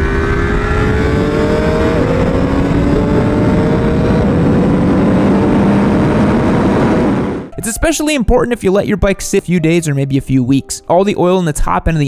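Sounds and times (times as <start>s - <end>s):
motorcycle engine accelerating: 0.0s - 7.5s
wind rush on microphone: 0.0s - 7.5s.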